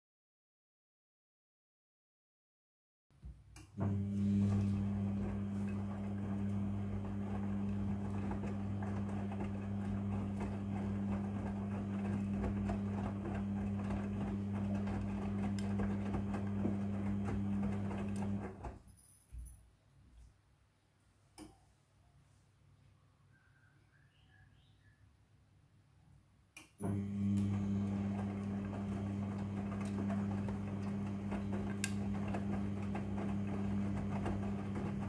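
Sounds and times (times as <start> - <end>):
washing machine motor hum: 3.6 - 18.8, 26.8 - 35.0.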